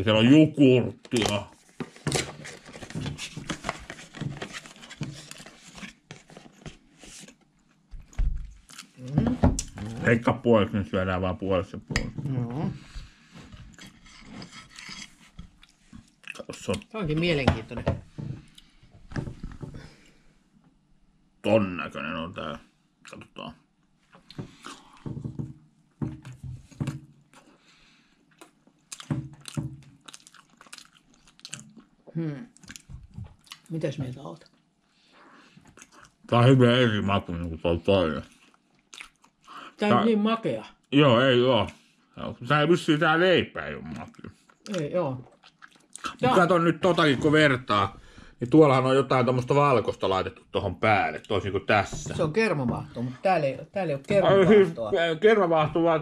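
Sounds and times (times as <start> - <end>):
person biting and chewing: 28.4 - 31.9.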